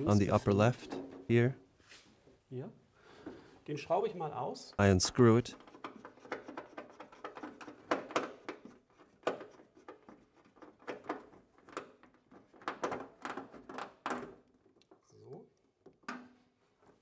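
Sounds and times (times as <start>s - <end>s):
plastic fittings clicking and rubbing: 5.5s - 17.0s.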